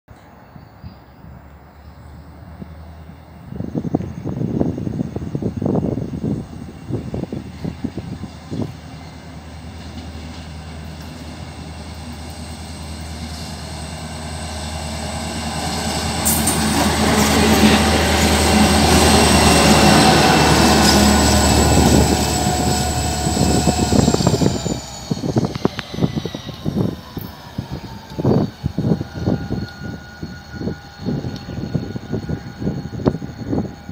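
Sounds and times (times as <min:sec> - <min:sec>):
diesel locomotive engine drone: 0:00.1 - 0:33.9
wheels on rail: 0:01.8 - 0:33.9
high steady whine: 0:19.3 - 0:33.9.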